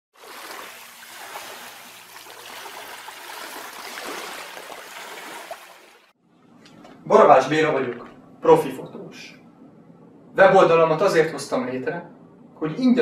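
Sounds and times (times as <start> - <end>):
seawater lapping: 0.1 - 8.3.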